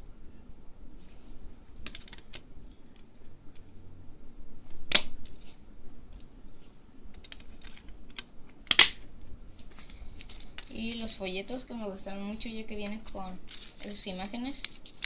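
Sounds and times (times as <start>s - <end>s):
discs snapping into place: 4.9s - 5.3s, 7.1s - 9.1s.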